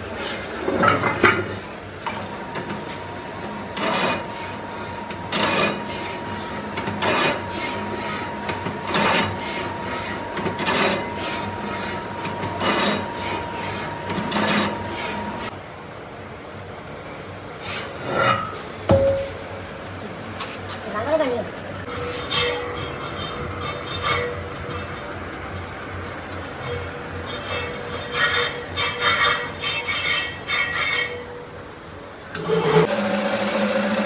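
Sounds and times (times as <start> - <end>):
heavy drum scraping on steel table: 3.7 - 15.5.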